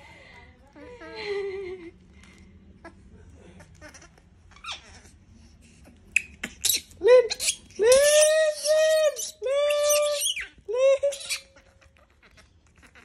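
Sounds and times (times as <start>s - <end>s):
baby monkey screaming: 6.2s - 13.0s
baby monkey squeaking: 6.2s - 13.0s.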